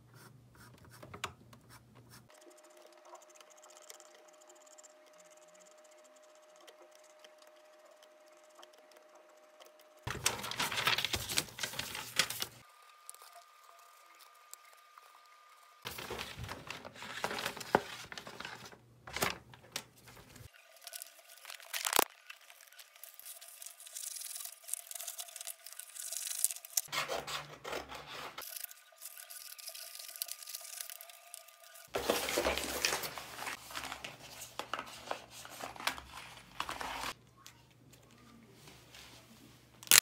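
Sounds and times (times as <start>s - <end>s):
paper rustling and crinkling: 10.1s - 12.6s, 15.9s - 37.2s
sharp paper snap: 21.7s - 22.1s.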